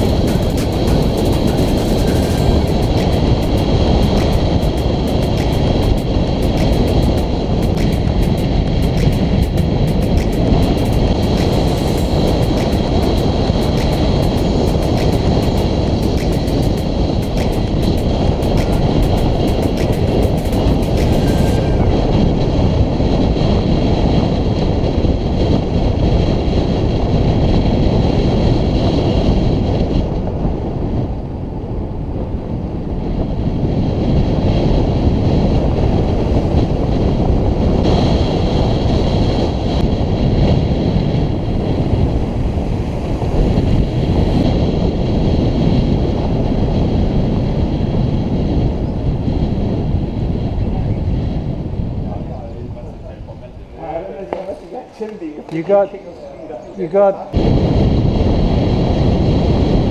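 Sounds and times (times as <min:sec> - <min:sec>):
thin high whine: 0:00.0 - 0:22.8
wind rushing over microphone: 0:00.0 - 0:59.9.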